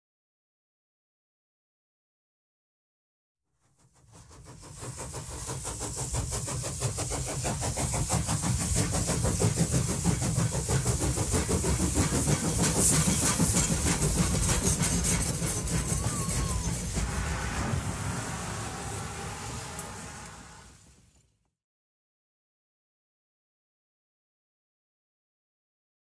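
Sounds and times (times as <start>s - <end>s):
steam locomotive chugging: 3.6s - 21.2s
steam hissing: 3.8s - 21.1s.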